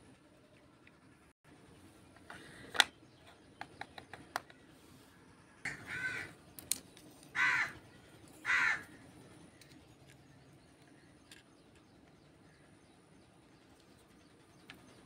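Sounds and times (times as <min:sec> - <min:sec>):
crow cawing: 0:05.7 - 0:06.4, 0:07.3 - 0:07.8, 0:08.4 - 0:09.0.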